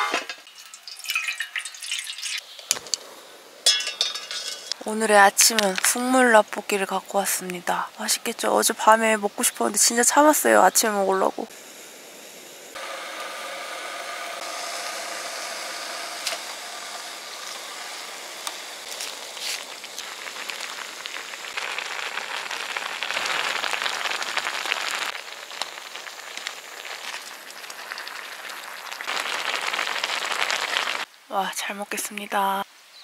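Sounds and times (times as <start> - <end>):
steady hiss: 0.0 - 33.0
soup bubbling in pan: 16.9 - 31.1.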